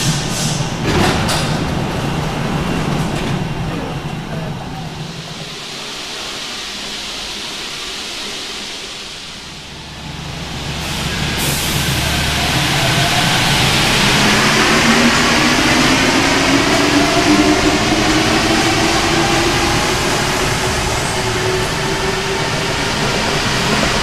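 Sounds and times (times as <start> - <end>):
metro train hum: 0.0 - 24.0
train drone and running noise: 0.0 - 24.0
hiss: 5.1 - 24.0.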